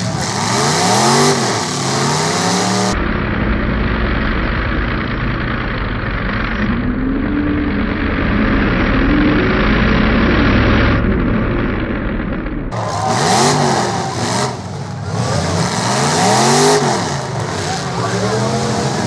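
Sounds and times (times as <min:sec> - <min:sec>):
car engines revving hard: 0:00.0 - 0:19.0
cars crashing into barriers: 0:07.6 - 0:19.0.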